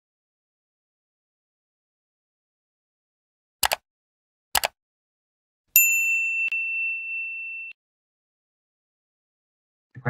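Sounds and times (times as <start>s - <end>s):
high ringing ding: 5.8s - 7.8s.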